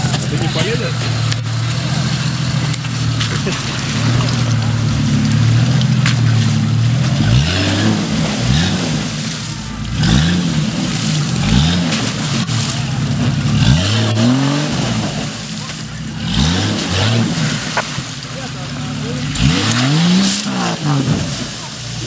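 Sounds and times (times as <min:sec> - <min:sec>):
engine revving hard: 0:00.0 - 0:22.0.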